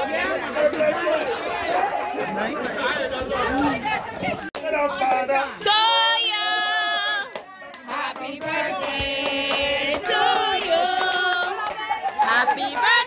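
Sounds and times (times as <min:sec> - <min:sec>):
hand clapping: 0:00.1 - 0:02.5, 0:04.5 - 0:05.8, 0:07.0 - 0:13.0
group of people singing: 0:05.7 - 0:13.0.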